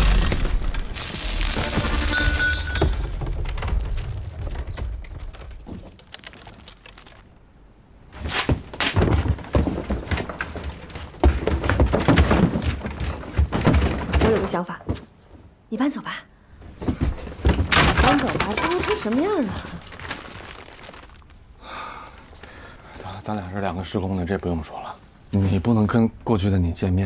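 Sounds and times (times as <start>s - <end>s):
loud rumble with crumbling: 0.0s - 7.4s, 17.5s - 21.6s
knocks and clatter: 1.6s - 7.2s, 8.3s - 15.1s, 16.8s - 21.0s.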